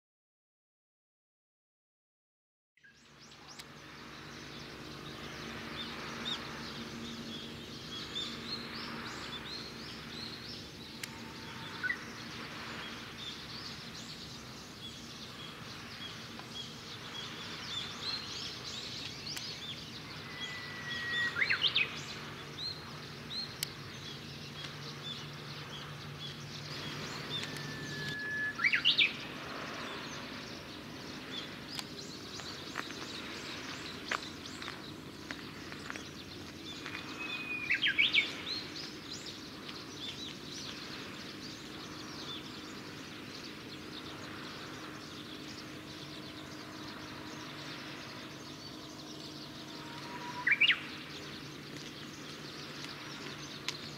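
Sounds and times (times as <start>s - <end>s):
small birds chirping: 2.8s - 53.9s
low steady hum: 2.9s - 53.9s
bird whistle with flourish: 20.1s - 22.0s, 27.2s - 29.2s, 49.7s - 50.9s.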